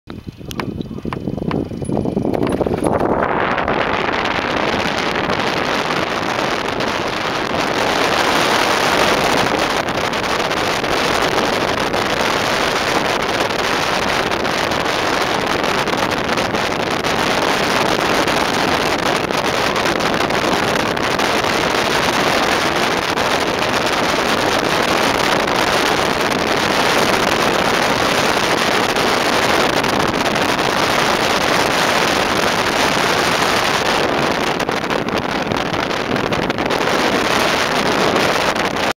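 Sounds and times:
airflow rushing over camera: 0.2 - 38.9.

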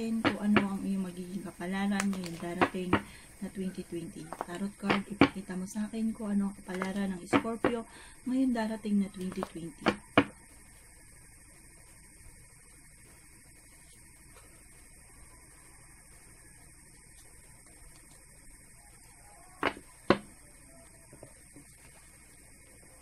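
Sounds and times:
electrical hum: 0.0 - 23.0
cards being shuffled: 1.9 - 2.7.

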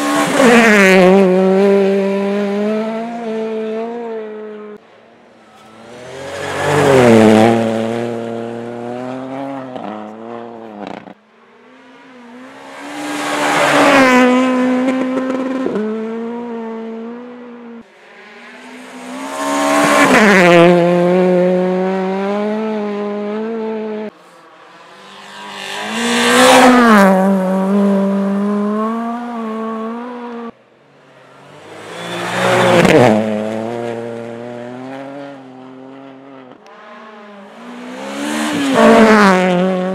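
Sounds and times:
rally cars racing past: 0.0 - 39.9.

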